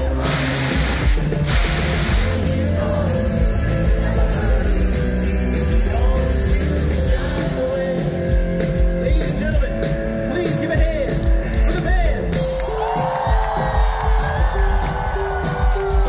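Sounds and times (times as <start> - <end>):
heavy bass: 0.0 - 12.5
live rock band: 0.0 - 16.0
person singing: 2.1 - 9.5.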